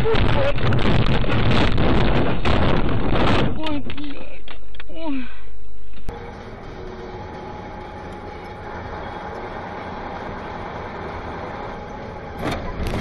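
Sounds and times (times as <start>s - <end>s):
faint steady whine: 3.8s - 13.0s
engine hum: 6.1s - 13.0s.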